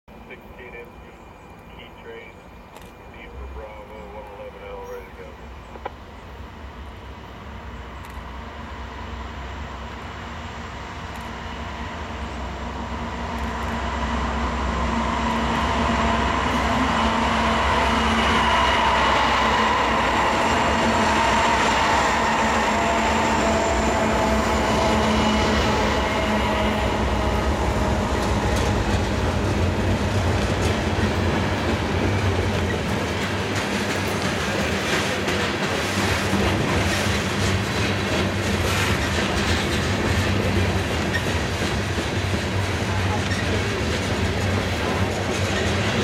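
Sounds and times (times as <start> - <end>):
diesel locomotives passing: 0.1 - 46.0
steel wheels on rails: 7.1 - 46.0.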